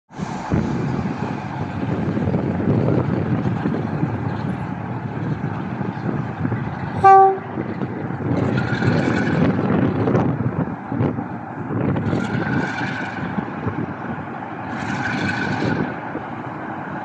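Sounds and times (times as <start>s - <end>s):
diesel locomotive engine running: 0.1s - 17.0s
locomotive horn blast: 7.0s - 7.6s.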